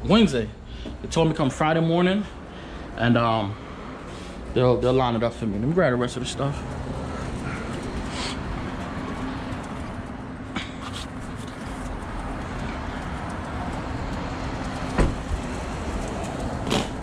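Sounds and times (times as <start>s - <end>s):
sharp thump: 15.0s - 15.3s.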